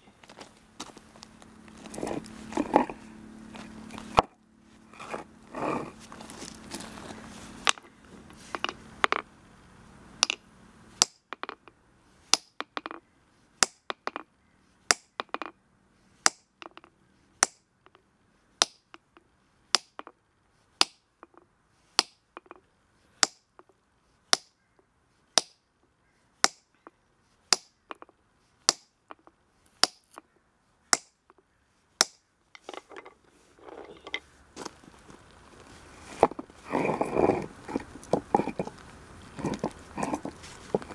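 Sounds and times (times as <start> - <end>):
stone scraping: 1.8 - 4.3, 4.9 - 9.3, 32.6 - 40.9
hammer striking stone: 12.3 - 13.0, 13.6 - 14.2, 14.9 - 15.5, 18.6 - 18.9, 19.8 - 20.1, 25.4 - 25.6, 27.5 - 28.1.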